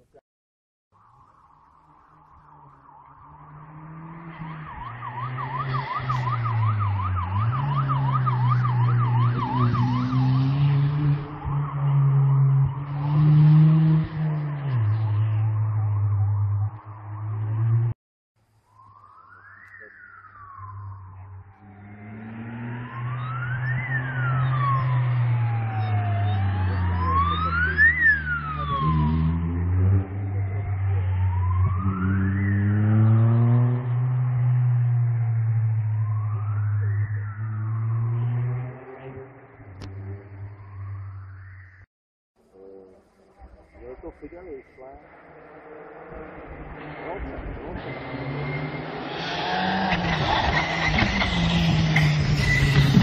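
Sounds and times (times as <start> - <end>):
yelping siren: 1.0 - 17.9, 18.7 - 41.9
car engine approaching: 1.0 - 53.0.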